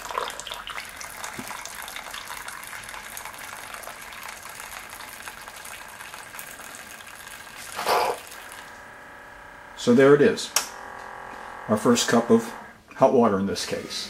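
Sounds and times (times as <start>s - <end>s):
hot water pouring into a mug: 0.0s - 9.0s.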